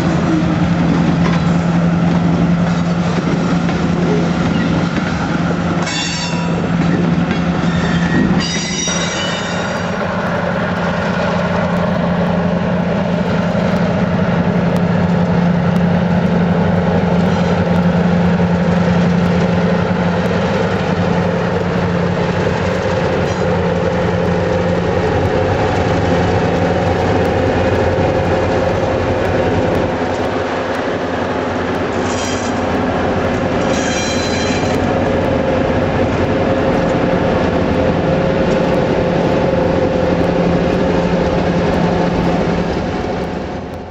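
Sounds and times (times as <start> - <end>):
freight train rumbling past: 0.0 - 43.9
train wheel squeals: 4.0 - 4.9, 5.8 - 10.0, 31.9 - 32.8, 33.6 - 34.9.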